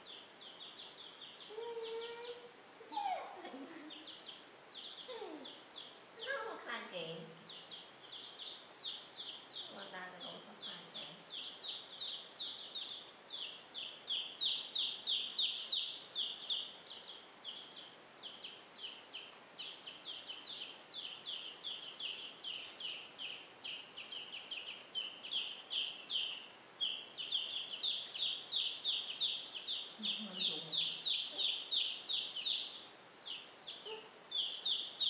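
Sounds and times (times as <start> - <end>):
baby chicks peeping: 0.0 - 35.0.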